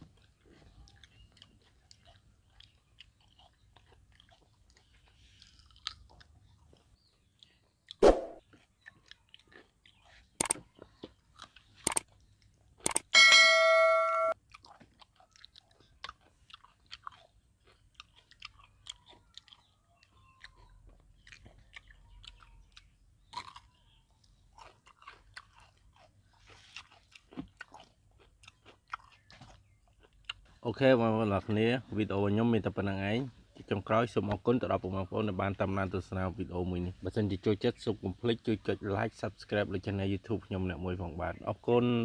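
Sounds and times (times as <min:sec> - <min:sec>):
chewing and crunching: 0:00.0 - 0:13.1, 0:14.3 - 0:32.0
sharp clicks: 0:10.4 - 0:10.6, 0:11.8 - 0:12.1, 0:12.8 - 0:13.1
bell-like ding: 0:13.2 - 0:14.4.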